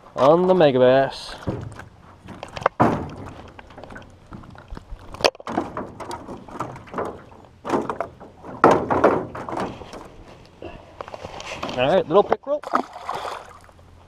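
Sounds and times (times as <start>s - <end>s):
thumps against boat hull: 1.4s - 3.4s
fish splashing: 12.6s - 13.8s.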